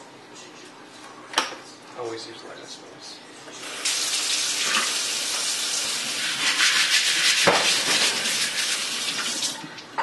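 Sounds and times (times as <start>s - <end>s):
tap water running into steel sink: 3.6s - 9.8s.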